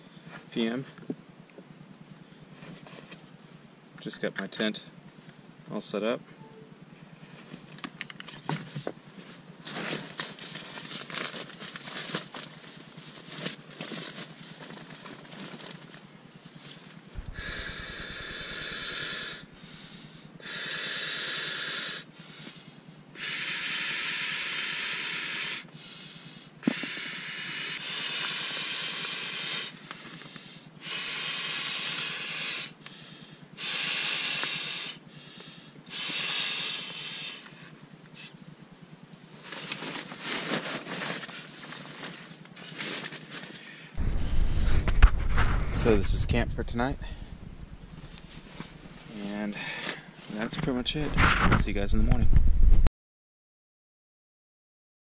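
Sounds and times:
long hissing breaths: 17.2 - 38.4, 43.4 - 50.2.

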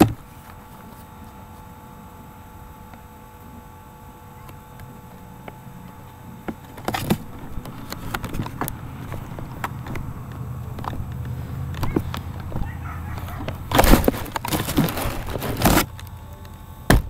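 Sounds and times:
low steady rumble: 0.0 - 17.0
camera handling noise: 6.6 - 14.5.

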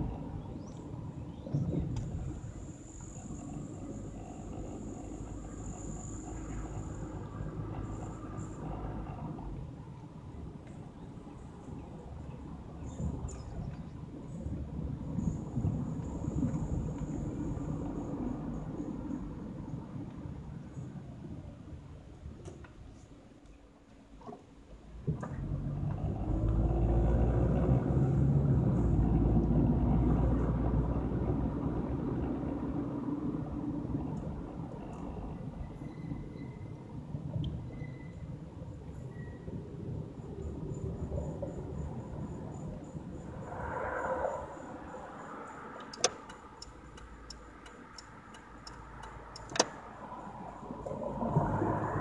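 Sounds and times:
car engine from inside cabin: 0.0 - 22.8, 23.4 - 37.8, 44.2 - 52.0
low road rumble: 0.0 - 52.0
car passing: 25.3 - 35.8, 39.5 - 52.0
turn signal ticking: 45.8 - 50.8.

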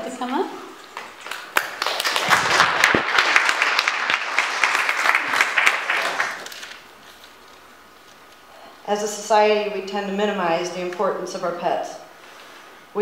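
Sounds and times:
audience applauding: 1.0 - 6.8.

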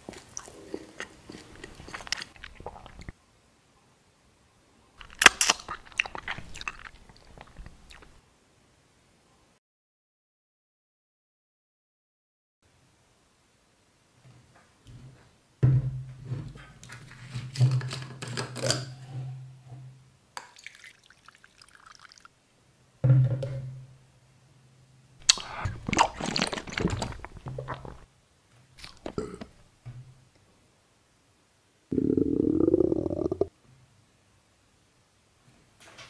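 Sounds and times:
liquid pouring and splashing: 1.8 - 3.1, 20.5 - 22.3, 25.2 - 28.1
bottle handling sounds: 25.2 - 28.0.

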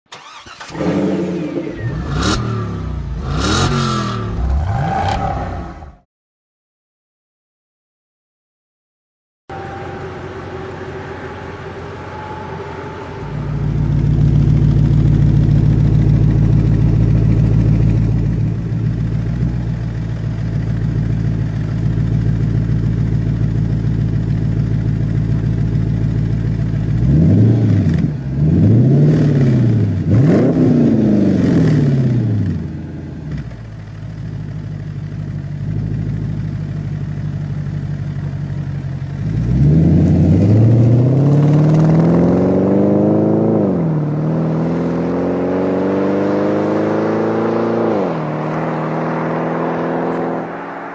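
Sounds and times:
car accelerating away: 0.1 - 6.0, 25.3 - 32.7, 39.2 - 50.9
car engine idling and revving: 0.1 - 6.0, 9.5 - 50.9.

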